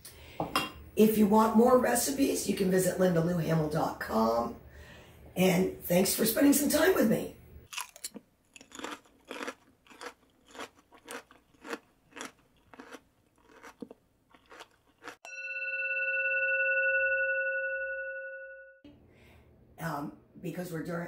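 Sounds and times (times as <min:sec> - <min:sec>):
person chewing crisp chips: 0:07.7 - 0:15.2
bell-like ringing tone: 0:15.2 - 0:18.8.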